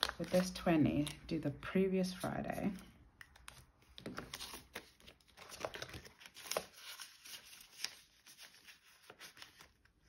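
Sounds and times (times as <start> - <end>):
paper money rustling: 3.3 - 10.0.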